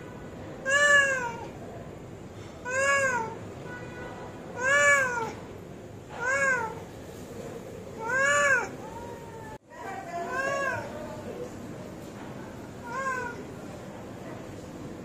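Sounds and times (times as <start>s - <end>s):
cat meowing: 0.6s - 1.6s, 2.6s - 3.4s, 4.6s - 5.4s, 6.1s - 6.9s, 8.0s - 11.0s, 12.8s - 13.5s.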